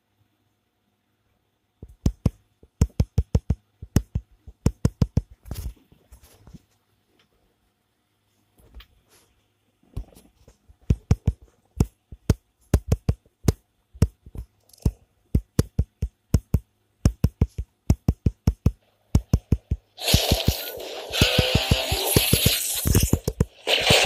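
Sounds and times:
sharp knocks in drum-like rhythm: 1.8 - 5.3, 15.4 - 19.9.

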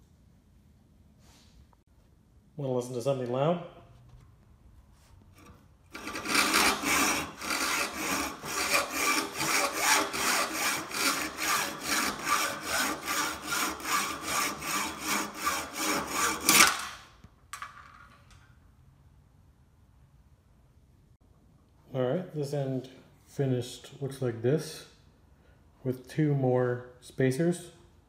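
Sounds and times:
hacksaw cutting metal: 5.4 - 17.0.

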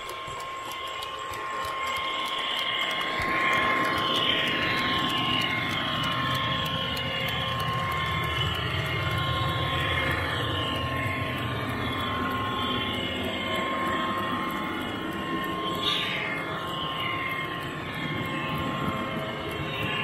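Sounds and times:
model train motor hum: 0.0 - 20.0
wheels clicking on rails: 0.0 - 20.0.

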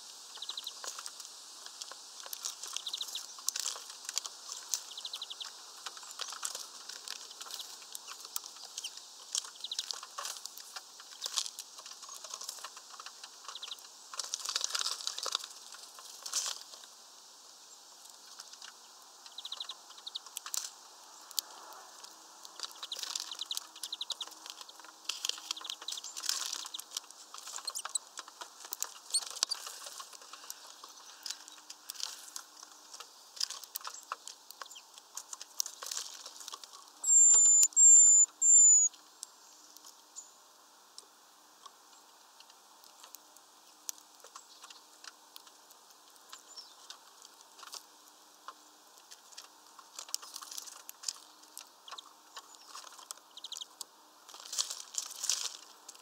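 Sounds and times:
small birds tapping on feeder: 0.3 - 16.8, 18.0 - 21.5, 22.4 - 38.9, 41.7 - 55.3
wing flutters: 21.5 - 38.9
high thin bird calls: 37.0 - 39.0.

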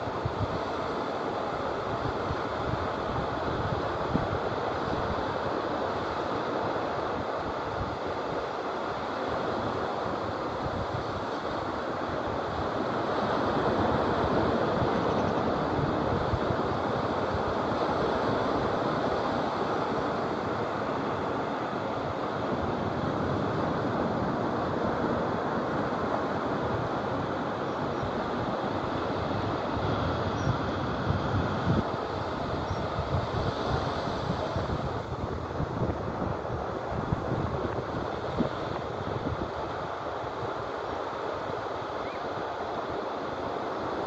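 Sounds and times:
sea surf breaking on beach: 0.0 - 44.0
wind buffeting microphone: 21.9 - 40.7.

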